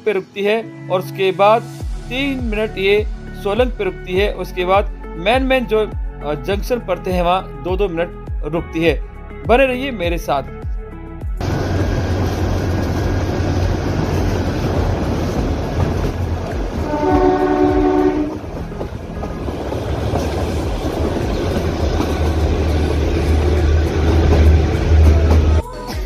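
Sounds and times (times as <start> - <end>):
train clattering on track: 11.4 - 25.6
train horn: 16.7 - 18.6.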